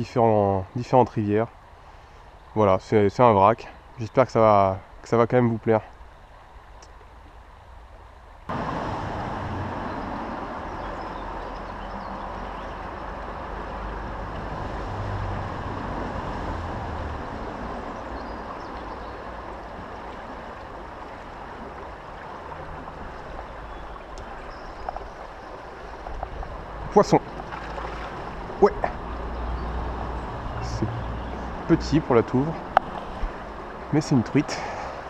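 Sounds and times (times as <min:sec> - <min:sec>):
fast-flowing river rushing: 0:08.5 - 0:35.0.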